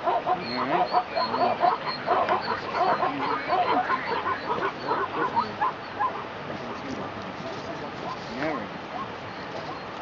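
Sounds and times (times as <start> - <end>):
zebras barking: 0.0 - 10.0.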